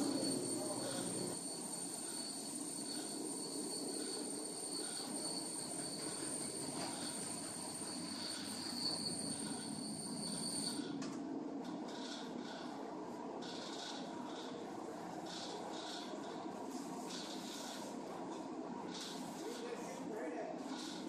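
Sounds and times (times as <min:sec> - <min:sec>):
machinery running: 0:00.0 - 0:10.3
high-pitched machine whine: 0:00.0 - 0:21.0.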